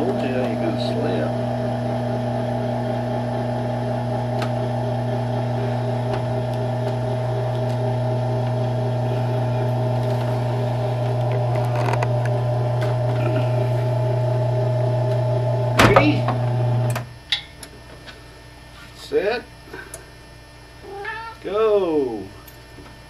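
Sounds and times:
treadmill motor humming: 0:00.0 - 0:17.1.

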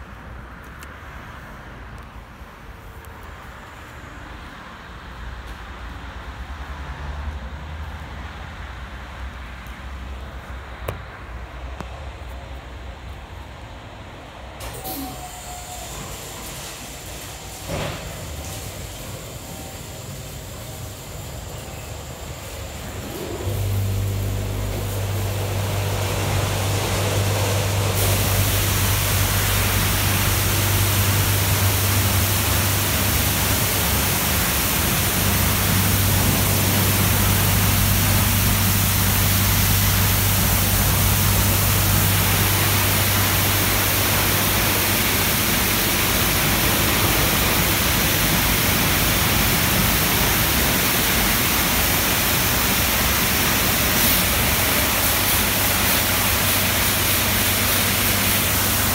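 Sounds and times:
low machine hum: 0:18.4 - 0:58.9
high-pressure water jets spraying: 0:22.2 - 0:58.9.

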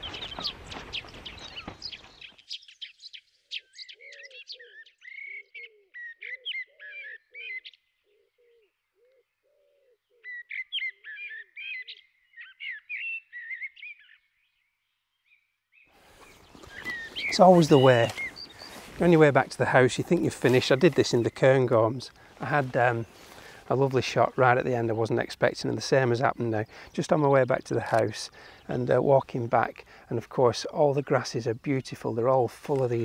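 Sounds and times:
songbirds chirping and trilling: 0:00.0 - 0:33.0
bird cooing call: 0:03.9 - 0:13.7, 0:16.5 - 0:18.9.

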